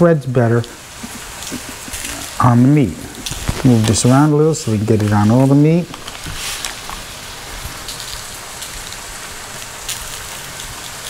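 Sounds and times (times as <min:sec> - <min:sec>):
onions sizzling in a pan: 0:00.0 - 0:11.0.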